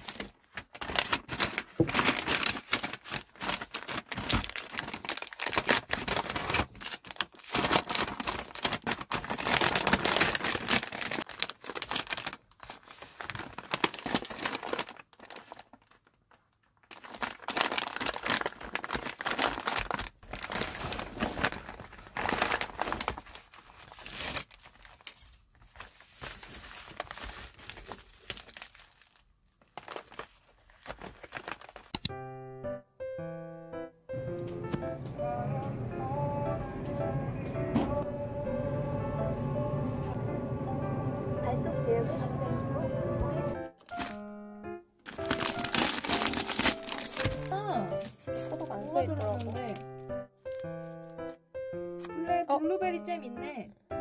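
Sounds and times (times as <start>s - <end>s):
packaging crinkling and rustling: 0.0s - 32.1s, 43.6s - 44.4s, 45.0s - 51.4s.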